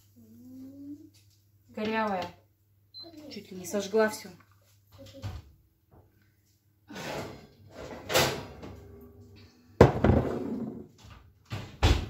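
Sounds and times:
oven door opening: 6.9 - 9.1.

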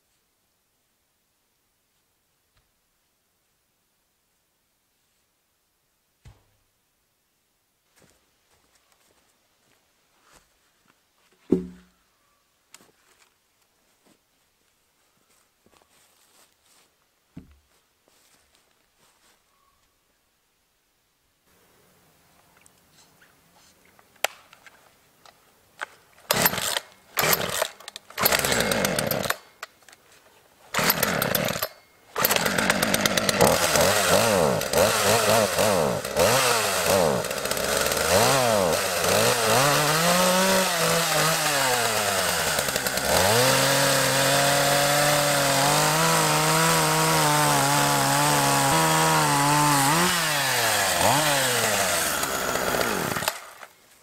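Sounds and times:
chainsaw sputtering and revving: 26.3 - 29.4, 30.8 - 53.7.

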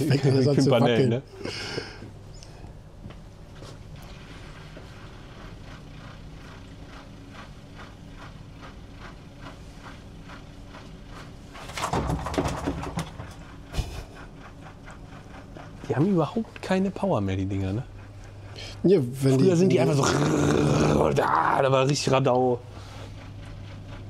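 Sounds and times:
rattling and knocking: 7.0 - 16.2.

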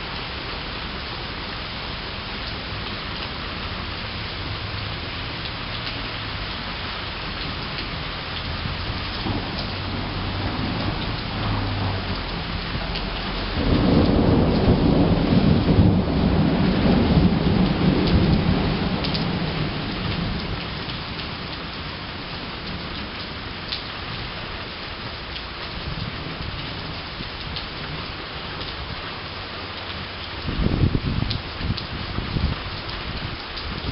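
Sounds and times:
rain falling: 0.0 - 33.9
thunder rumbling: 8.5 - 23.5, 30.5 - 33.9.

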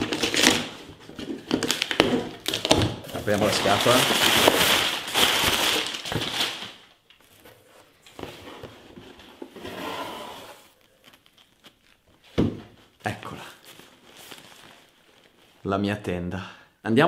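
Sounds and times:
packing paper crumpling: 0.0 - 7.8, 10.6 - 12.2, 13.5 - 15.6.

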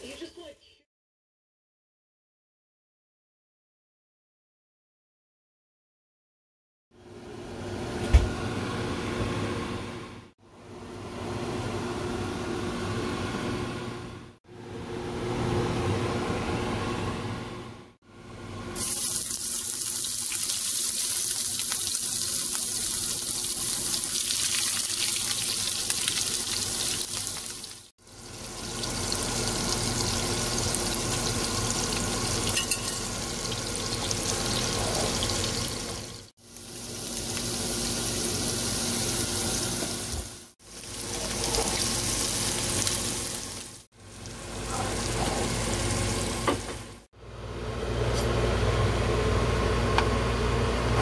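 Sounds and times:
shrimp sizzling in frying pan: 18.8 - 43.8.

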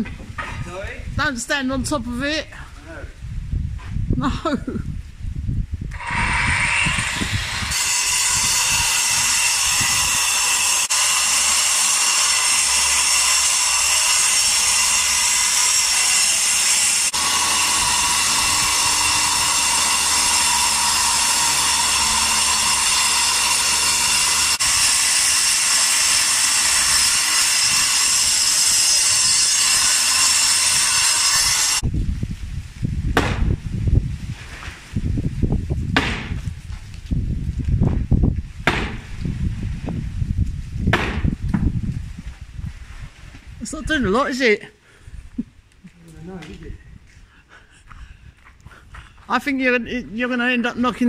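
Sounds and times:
angle grinder cutting masonry: 5.9 - 31.8.

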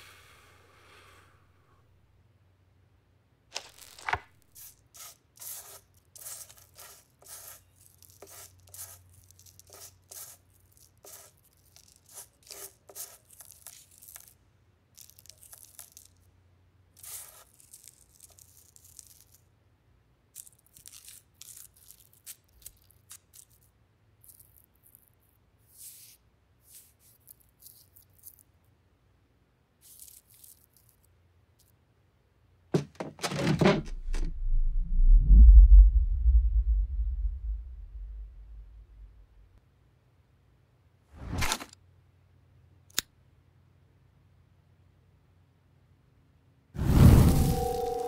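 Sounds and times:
paper and tobacco rustling: 3.5 - 14.3.

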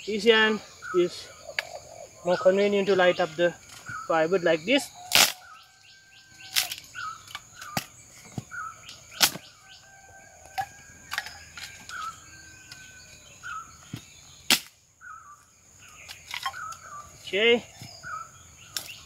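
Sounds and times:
dry sticks snapping: 5.0 - 5.7, 6.4 - 8.0, 8.8 - 9.5, 10.4 - 12.9, 13.9 - 14.8, 16.0 - 16.9, 18.7 - 19.0.

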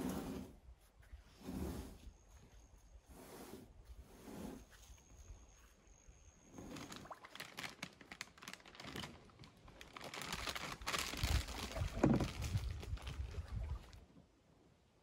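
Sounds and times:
camping gear clicking and crinkling: 6.5 - 13.5.

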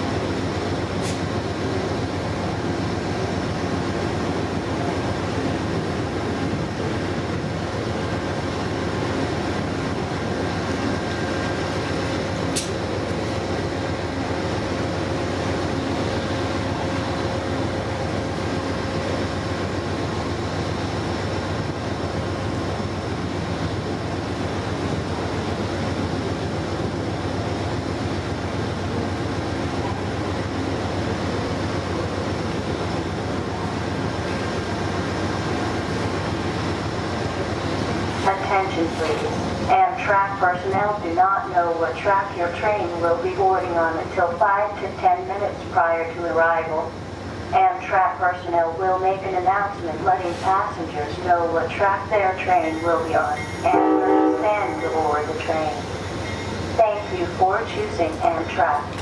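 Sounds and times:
train rumbling: 0.0 - 59.0
sharp click: 12.5 - 12.8.

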